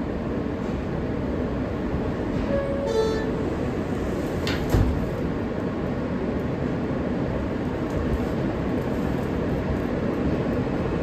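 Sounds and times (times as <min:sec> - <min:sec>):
subway train rumble: 0:00.0 - 0:11.0
sliding doors shutting: 0:02.3 - 0:05.3.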